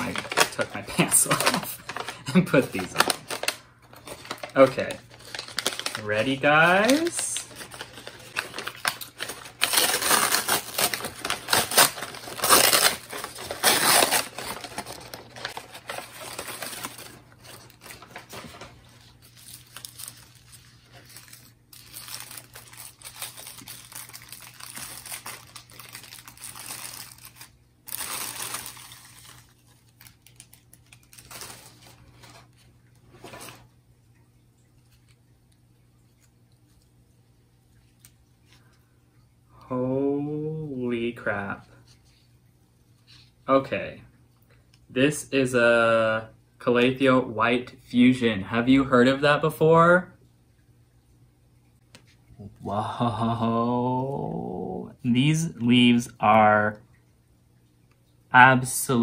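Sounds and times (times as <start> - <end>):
paper and plastic crinkling: 0.0 - 33.7.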